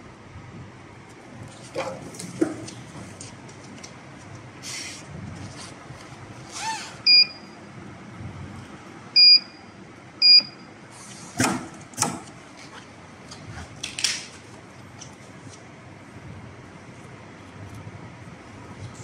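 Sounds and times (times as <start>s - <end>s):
control panel beeping: 7.1s - 7.5s, 9.2s - 9.6s, 10.2s - 10.7s.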